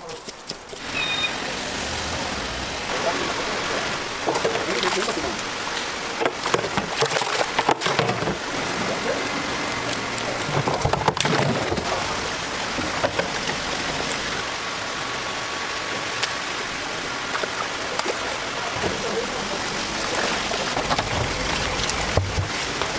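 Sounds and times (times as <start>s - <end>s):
water splashing and bubbling: 0.2s - 22.9s
knocks and clatters: 4.2s - 5.4s, 6.2s - 8.9s, 10.2s - 12.0s.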